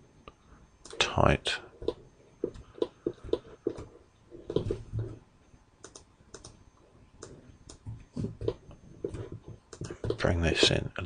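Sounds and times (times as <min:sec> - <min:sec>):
mouse and keyboard clicking: 0:05.8 - 0:06.6.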